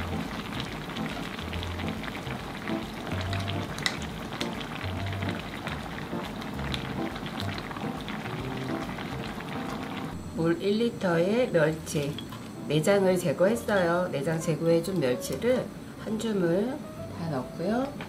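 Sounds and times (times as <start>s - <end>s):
stew bubbles popping: 0.0s - 10.2s.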